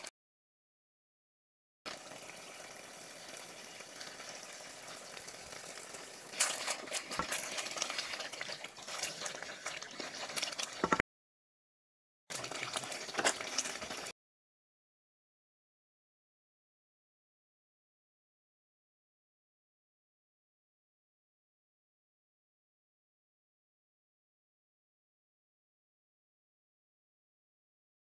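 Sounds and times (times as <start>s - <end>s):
stew bubbling in a pot: 1.9s - 11.0s, 12.3s - 14.2s
wooden spoon stirring stew: 6.3s - 11.0s, 12.3s - 14.1s.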